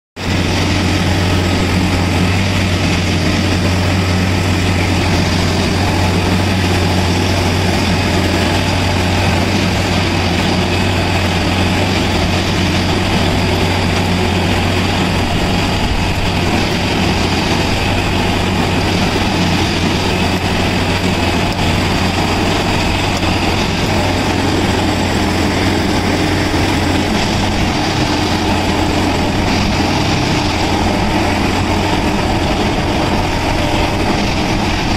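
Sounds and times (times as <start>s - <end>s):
diesel engine humming: 0.2s - 34.9s.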